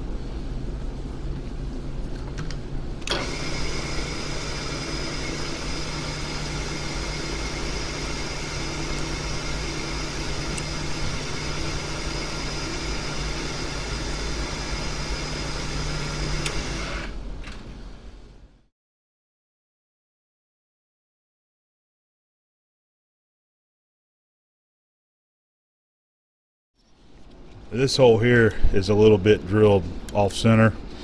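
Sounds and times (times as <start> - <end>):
drilling machine humming: 3.0 - 17.3.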